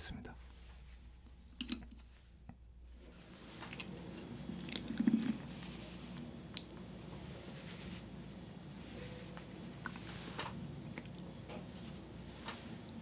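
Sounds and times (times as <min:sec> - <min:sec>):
wet sticky food sounds: 0:03.4 - 0:06.8, 0:09.7 - 0:12.0.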